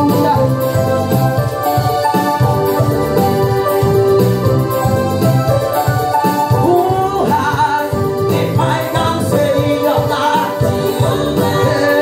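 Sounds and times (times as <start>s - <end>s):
sustained keyboard chords: 0.0s - 12.0s
woman singing gospel: 6.7s - 12.0s.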